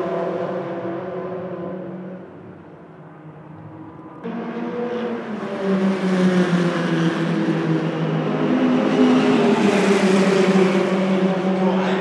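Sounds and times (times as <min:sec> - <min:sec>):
race car engines at high revs: 0:03.6 - 0:12.0.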